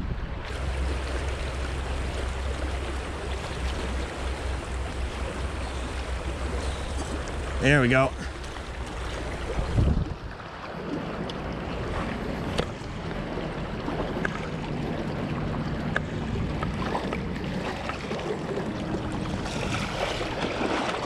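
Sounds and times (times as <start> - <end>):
stream rushing over rocks: 0.5 - 14.2.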